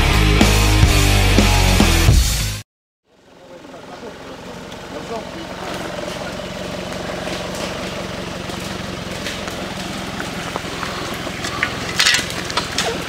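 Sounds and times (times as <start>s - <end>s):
engine running at low revs: 3.1s - 13.0s.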